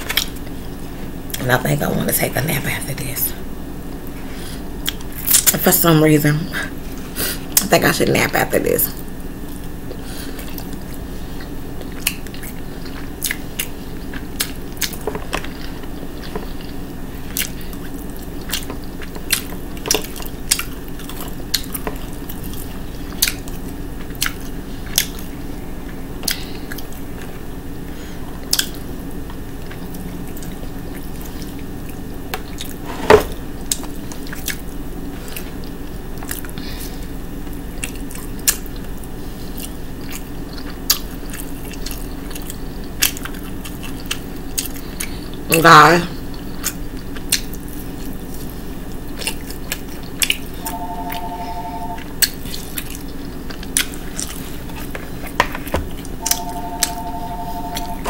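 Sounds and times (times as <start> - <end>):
low background hum: 0.0 - 58.0
chewing and mouth noises: 9.4 - 27.4, 28.4 - 32.8, 33.6 - 45.4, 46.1 - 50.8, 51.9 - 55.4.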